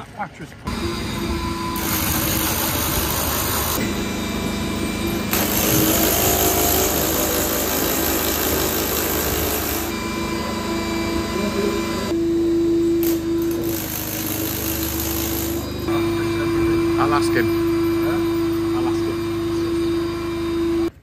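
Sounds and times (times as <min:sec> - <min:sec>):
hammer drill boring into brick: 0:01.8 - 0:03.8, 0:05.3 - 0:09.9, 0:13.0 - 0:15.7.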